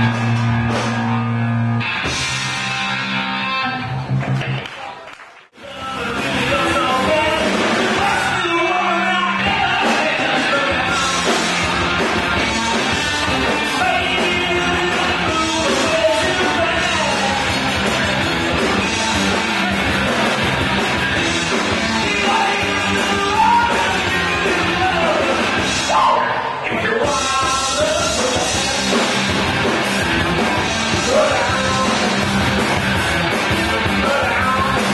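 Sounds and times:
live rock band with vocals: 0:05.6 - 0:34.9.

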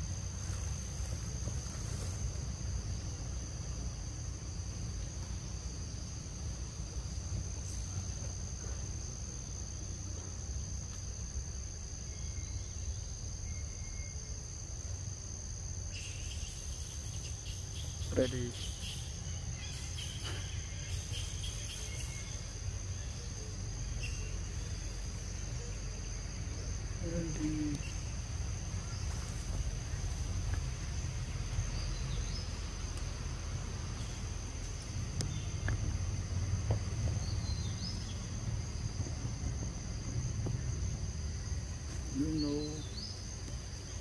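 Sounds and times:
insect chorus: 0:00.0 - 0:44.0
low steady rumble: 0:22.0 - 0:42.1.

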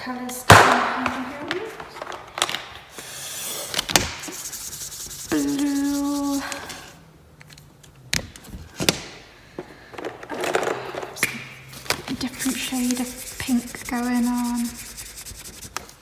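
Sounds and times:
markers scribbling on paper: 0:04.3 - 0:06.4, 0:12.2 - 0:15.9.

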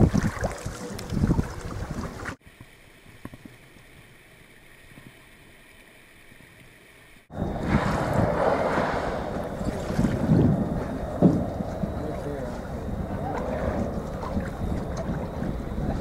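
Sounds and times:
wind buffeting microphone: 0:00.0 - 0:02.4, 0:07.3 - 0:16.0.

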